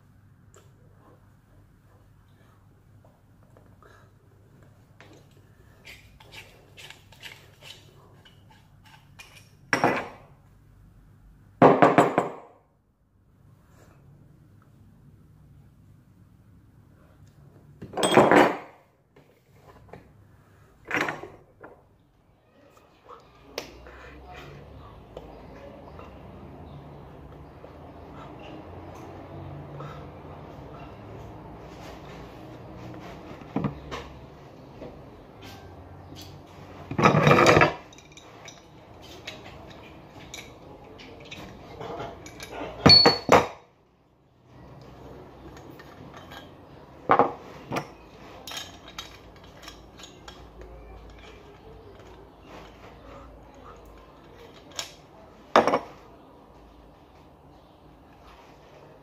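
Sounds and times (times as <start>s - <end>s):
metallic rattling and scraping: 5.8s - 9.7s, 35.4s - 43.3s, 45.0s - 55.0s.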